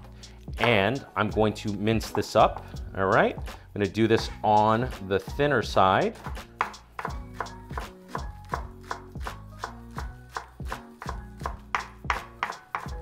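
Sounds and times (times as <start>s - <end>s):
faint background music: 0.0s - 13.0s
knife chopping on wooden board: 6.2s - 13.0s.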